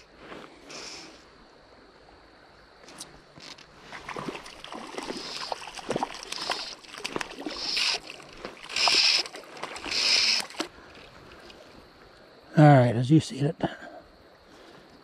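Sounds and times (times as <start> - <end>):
fish splashing at surface: 3.8 - 11.5
fly line zipping hiss: 4.2 - 10.7.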